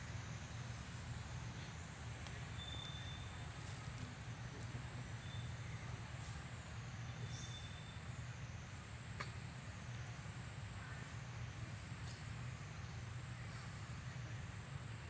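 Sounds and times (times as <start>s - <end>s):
low outdoor rumble: 0.0s - 15.0s
faint click: 9.2s - 9.4s.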